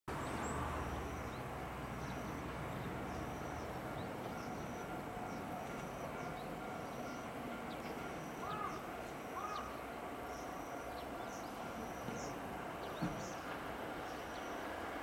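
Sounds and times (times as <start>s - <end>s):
small birds chirping: 0.2s - 14.7s.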